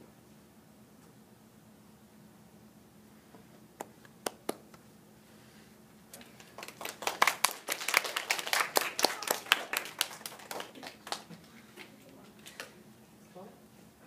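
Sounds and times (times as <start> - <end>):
children clapping: 6.2 - 11.9.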